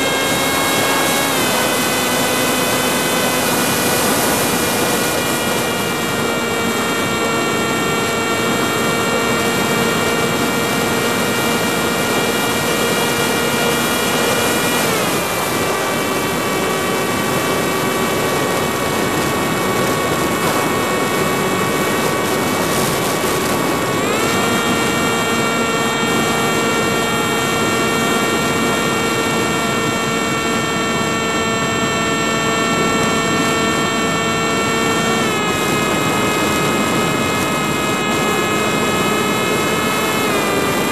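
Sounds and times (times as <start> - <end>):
rushing noise: 0.0 - 29.7
drone motors whining: 0.0 - 40.9.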